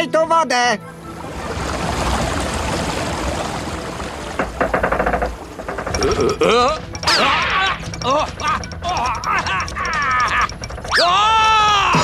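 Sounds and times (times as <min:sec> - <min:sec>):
water gushing onto water wheel: 0:00.9 - 0:12.0
rapid rattle: 0:04.4 - 0:12.0.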